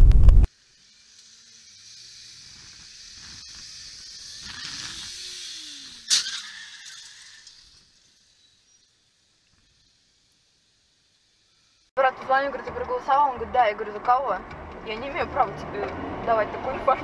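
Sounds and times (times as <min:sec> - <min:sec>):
low engine pitch: 0:00.0 - 0:00.5, 0:12.0 - 0:17.0.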